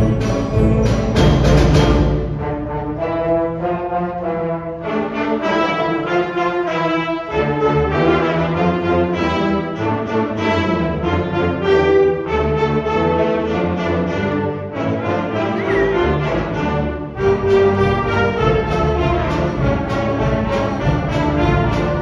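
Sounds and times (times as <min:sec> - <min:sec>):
concert band playing: 0:00.0 - 0:04.3, 0:15.4 - 0:22.0.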